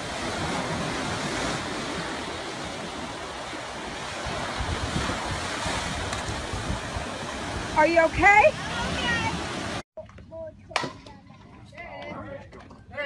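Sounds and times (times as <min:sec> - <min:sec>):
ocean surf breaking: 0:00.0 - 0:09.8
wind rumble on microphone: 0:00.0 - 0:09.8.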